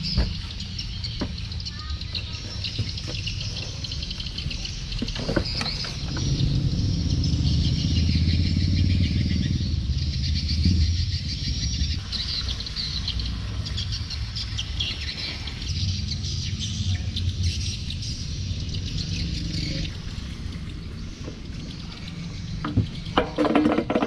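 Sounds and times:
dense high chirping: 5.7s - 23.2s.

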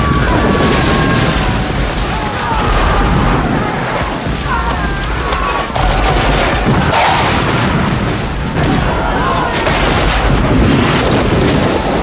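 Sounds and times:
voices shouting: 0.0s - 10.4s
gunfire and explosions: 0.0s - 12.0s.

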